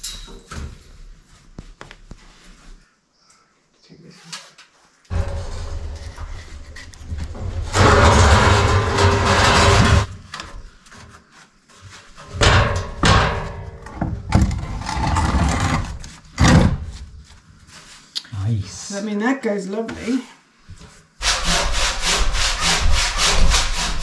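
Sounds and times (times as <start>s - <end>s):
wooden beam scraping over stone: 14.5s - 16.2s.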